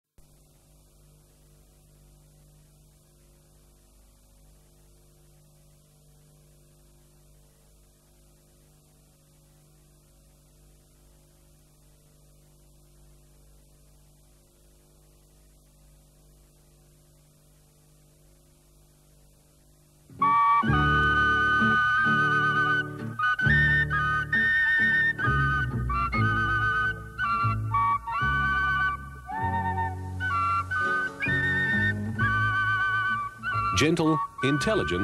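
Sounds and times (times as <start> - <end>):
electrical hum with hiss: 0.1 - 35.0
music: 20.1 - 35.0.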